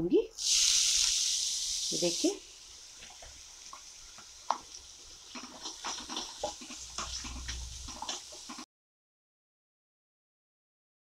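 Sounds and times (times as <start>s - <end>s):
faint sizzle: 0.2s - 8.6s
spatula scraping pan: 4.2s - 8.6s.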